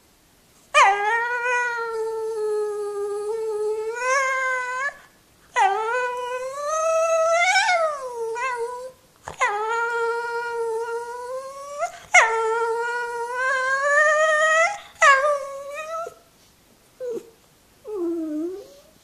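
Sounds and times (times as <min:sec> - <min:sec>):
dog howling: 0:00.8 - 0:05.0, 0:05.6 - 0:16.2.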